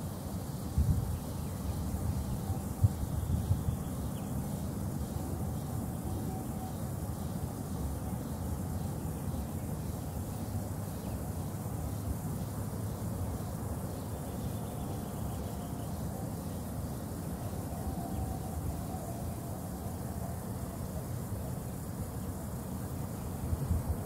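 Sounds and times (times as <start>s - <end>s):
faint high hiss: 0.0s - 24.0s.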